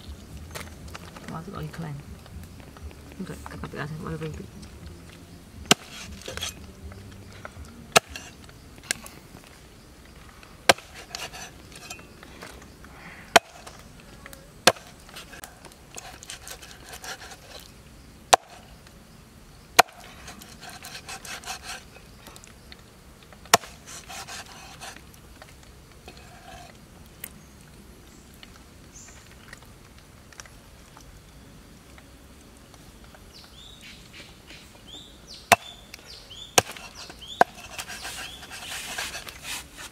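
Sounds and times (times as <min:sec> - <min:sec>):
blade scraping on board: 0:05.7 - 0:06.6, 0:08.0 - 0:08.4, 0:10.7 - 0:12.5, 0:14.6 - 0:17.7, 0:19.8 - 0:22.0, 0:23.5 - 0:25.0, 0:26.1 - 0:26.8, 0:36.6 - 0:39.9
cleaver chopping on wooden board: 0:05.7 - 0:06.6, 0:08.0 - 0:08.3, 0:10.7 - 0:12.0, 0:13.3 - 0:13.8, 0:14.6 - 0:15.4, 0:18.3 - 0:18.6, 0:19.8 - 0:21.8, 0:23.5 - 0:25.0, 0:35.5 - 0:35.8, 0:36.6 - 0:39.3.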